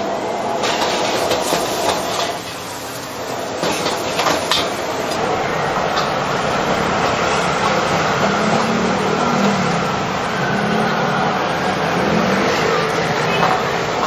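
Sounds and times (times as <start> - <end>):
gas burner roaring: 0.0 - 14.0
vegetables sizzling in hot oil: 0.6 - 8.1.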